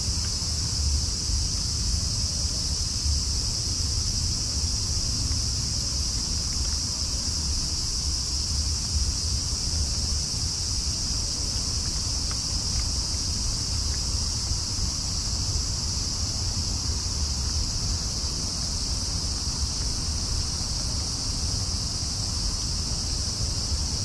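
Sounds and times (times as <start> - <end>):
crickets chirping: 0.0 - 24.0
cat eating from paper bowl: 4.6 - 7.8, 10.8 - 15.1.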